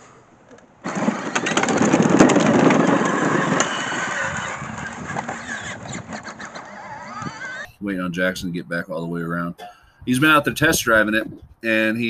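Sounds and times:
plastic wheels rolling over leaves: 0.8s - 7.6s
electric motors whirring: 0.9s - 7.7s.

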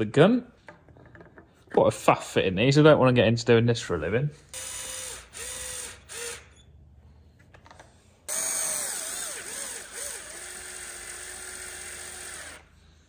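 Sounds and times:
cordless drill whining: 4.5s - 6.6s, 8.3s - 12.8s.

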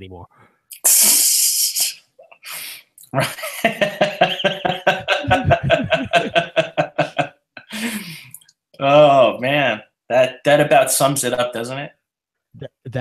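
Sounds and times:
man laughing heartily: 3.2s - 8.1s.

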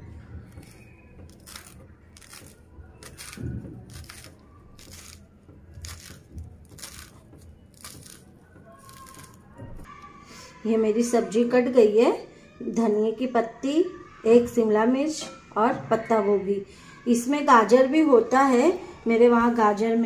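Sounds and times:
knife chopping leaves on wooden board: 0.5s - 9.9s.

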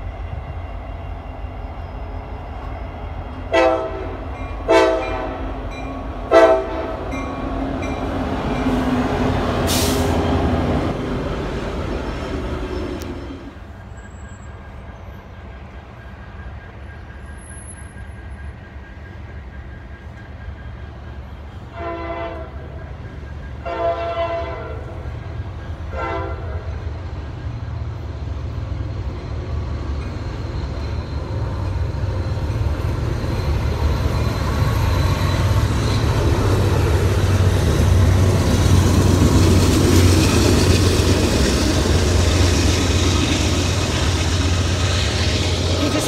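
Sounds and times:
diesel locomotive engine drone: 0.0s - 46.0s
locomotive horn blasts: 3.5s - 5.6s, 6.3s - 7.2s, 21.7s - 22.7s, 23.6s - 25.0s, 25.9s - 26.7s.

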